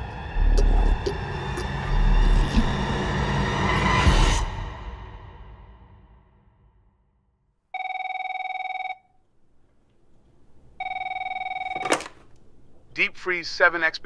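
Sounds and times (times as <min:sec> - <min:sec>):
telephone ringing with warbling trill: 0:07.8 - 0:09.0, 0:10.8 - 0:12.1.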